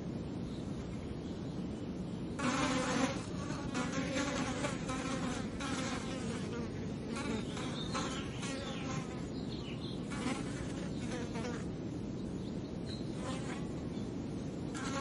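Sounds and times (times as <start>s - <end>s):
flies buzzing: 2.4s - 9.4s, 10.0s - 11.7s, 13.1s - 13.9s, 14.7s - 15.0s.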